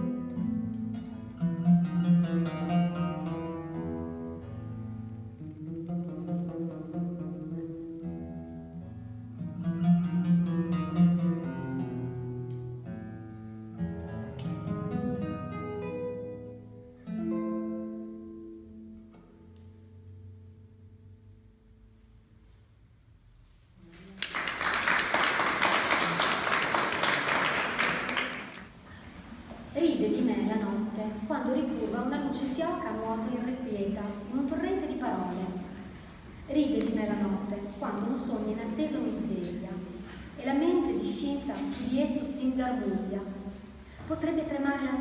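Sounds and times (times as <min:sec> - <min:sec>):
classical guitar playing: 0:00.0 - 0:22.6, 0:26.0 - 0:45.0
audience applauding: 0:24.0 - 0:28.9.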